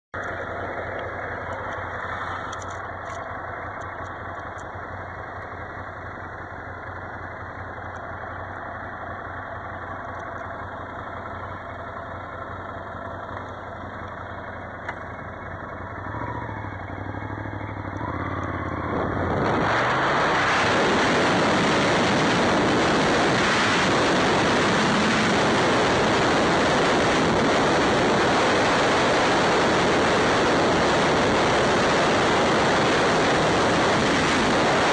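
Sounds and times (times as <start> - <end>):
motorcycle engine revving: 0.2 - 34.9
wind rushing on microphone: 18.8 - 34.9.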